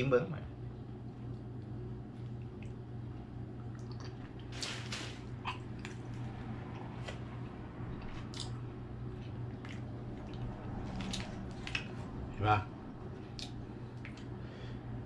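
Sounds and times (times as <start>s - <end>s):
man chewing wetly: 1.0s - 4.5s, 5.3s - 7.1s, 7.9s - 12.1s, 13.1s - 14.4s.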